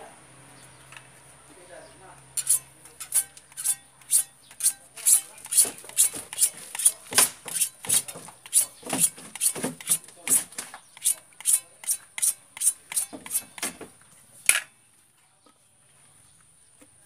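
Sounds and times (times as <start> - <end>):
hacksaw cutting plastic pipe: 2.4 - 14.7.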